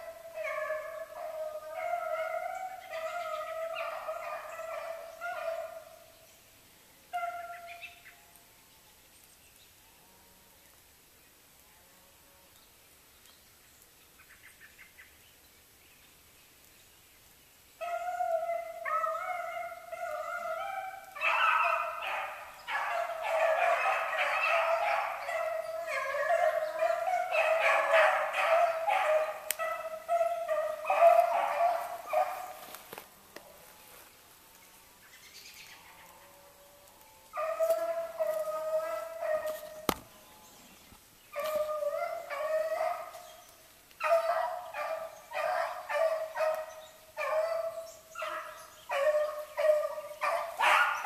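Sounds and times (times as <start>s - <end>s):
hounds baying: 0.0s - 6.0s, 17.8s - 33.0s, 36.0s - 40.0s, 41.3s - 51.0s.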